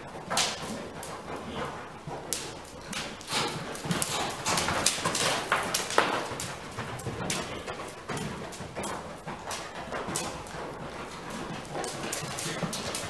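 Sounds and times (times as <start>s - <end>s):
horse hooves on dirt: 0.0s - 13.0s.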